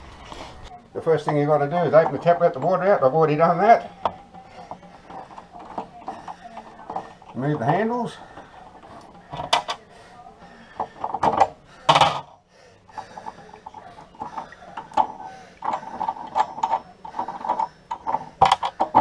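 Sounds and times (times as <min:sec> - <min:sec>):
metallic clicks knocks and scrapes: 0:03.9 - 0:09.8, 0:10.8 - 0:12.4, 0:13.0 - 0:19.0.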